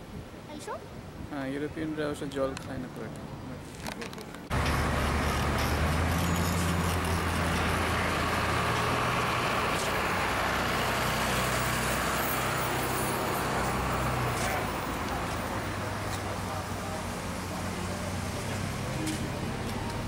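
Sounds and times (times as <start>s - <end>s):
bus engine droning: 4.5s - 20.0s.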